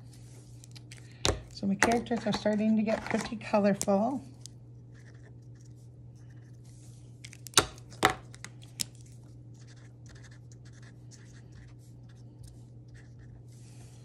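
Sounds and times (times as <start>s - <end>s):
markers scratching on paper: 9.6s - 12.2s, 12.9s - 13.4s.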